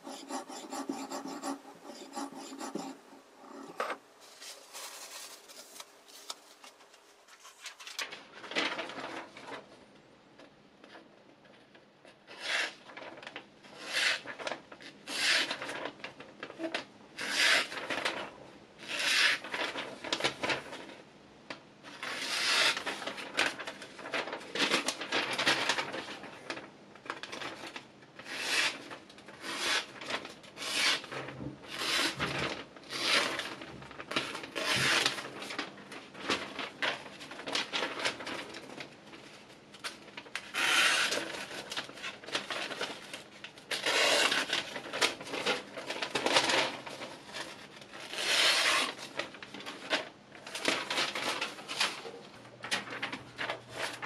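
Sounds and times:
kitchen knife rasping strokes: 0.0s - 5.7s.

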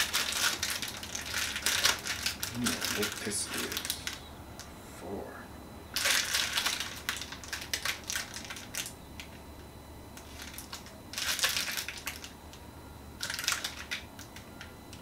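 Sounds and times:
plastic packaging crinkling: 0.0s - 4.3s, 5.9s - 9.4s, 10.2s - 12.6s, 13.2s - 14.7s.

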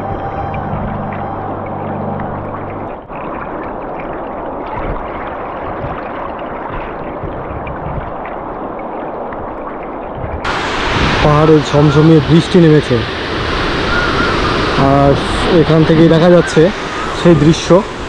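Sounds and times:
fast river water rushing: 0.0s - 18.0s.

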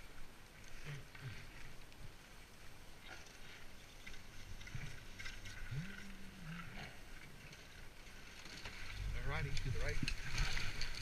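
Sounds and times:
low drawn-out tone: 4.8s - 7.3s.

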